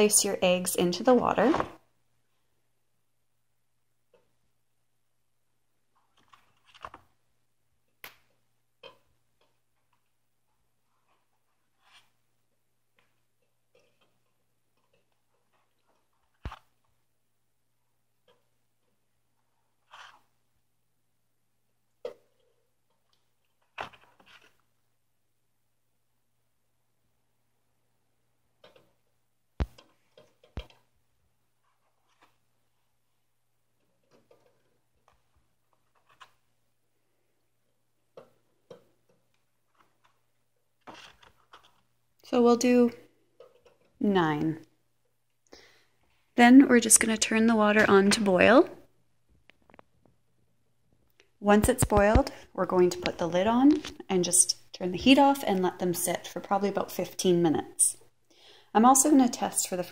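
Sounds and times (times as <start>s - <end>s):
eggs clicking and knocking: 5.8s - 17.2s, 33.6s - 42.3s
eggs rustling in carton: 38.1s - 42.0s.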